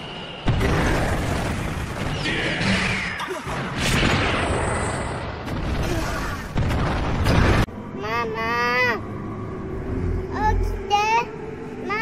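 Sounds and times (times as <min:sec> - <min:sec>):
booms and crashes: 0:00.4 - 0:07.7
explosion blasts: 0:00.4 - 0:07.7.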